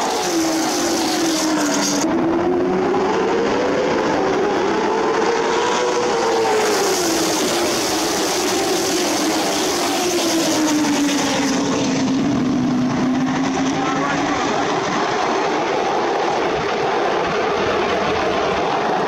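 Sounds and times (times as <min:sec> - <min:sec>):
stock cars racing past: 0:00.0 - 0:19.0.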